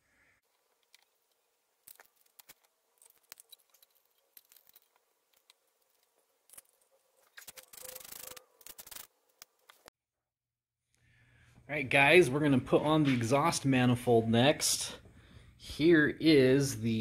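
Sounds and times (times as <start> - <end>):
metal parts clicking and tapping: 0.5 - 6.8
handling rustle: 0.5 - 9.9.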